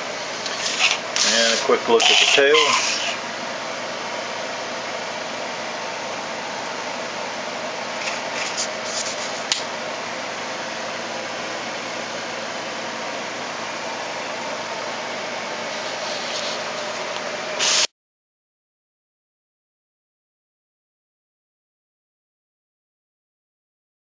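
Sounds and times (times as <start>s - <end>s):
soft rustles: 15.7s - 17.1s.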